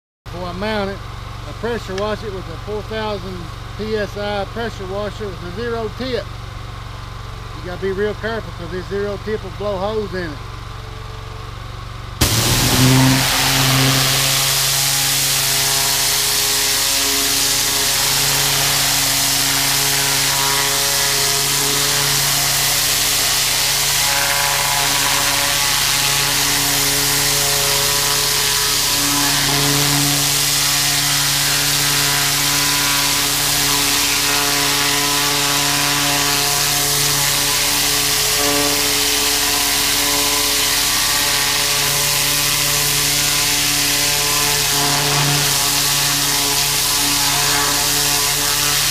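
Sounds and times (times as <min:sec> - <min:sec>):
pressure washer engine drone: 0:00.3 - 0:48.9
water jet hissing: 0:12.2 - 0:48.9.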